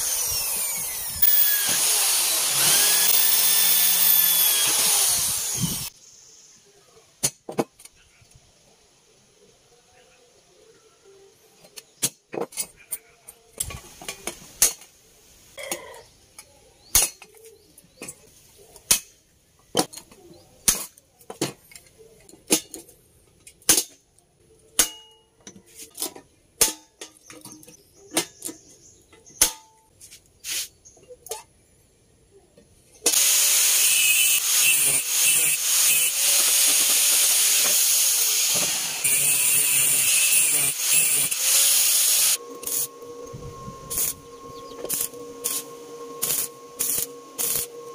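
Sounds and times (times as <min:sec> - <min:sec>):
angle grinder cutting steel: 0:00.0 - 0:05.9, 0:33.1 - 0:47.9.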